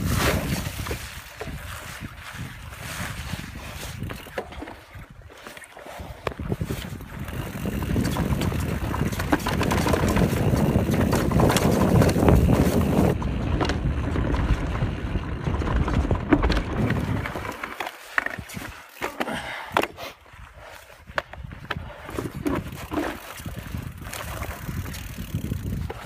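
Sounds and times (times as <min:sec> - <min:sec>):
bike rattling and knocking: 0:00.0 - 0:04.9, 0:06.4 - 0:19.9, 0:21.1 - 0:26.0
wind buffeting microphone: 0:00.0 - 0:05.3, 0:05.9 - 0:17.6, 0:20.3 - 0:26.0
tyres rumbling over dirt: 0:07.2 - 0:18.7.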